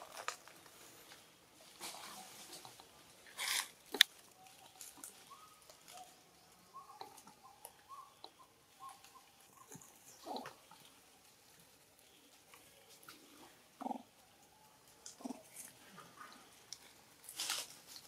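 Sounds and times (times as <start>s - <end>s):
rustle in dry leaves: 0.0s - 7.2s, 16.9s - 18.0s.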